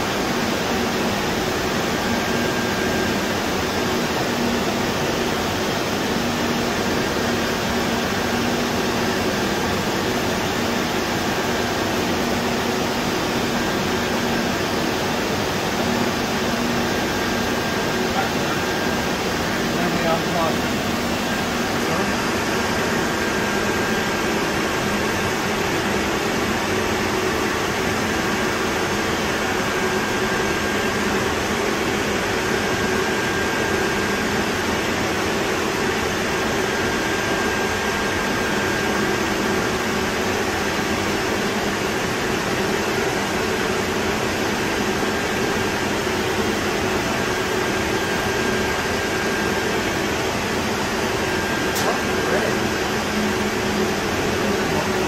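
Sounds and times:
cooling fan rushing: 0.0s - 55.0s.

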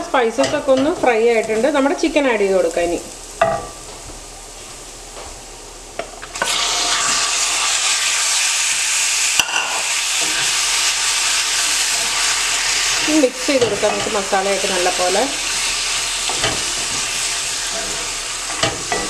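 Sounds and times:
chicken frying in oil sizzle: 6.2s - 19.0s.

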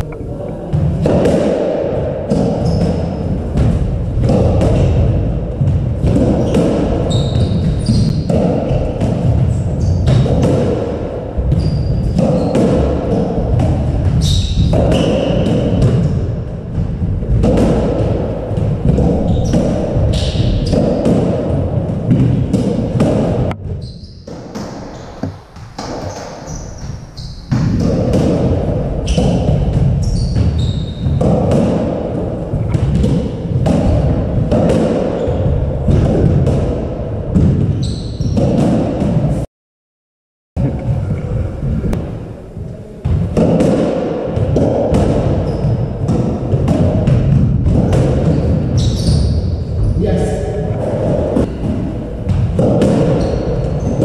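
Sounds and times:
squash ball smacking: 0.7s - 23.6s, 24.2s - 26.9s, 27.5s - 39.3s, 43.0s - 49.6s, 50.7s - 54.0s
shoes squeaking: 2.5s - 3.2s, 6.4s - 8.3s, 30.0s - 31.2s, 37.7s - 38.5s, 48.3s - 50.0s, 53.0s - 54.0s.

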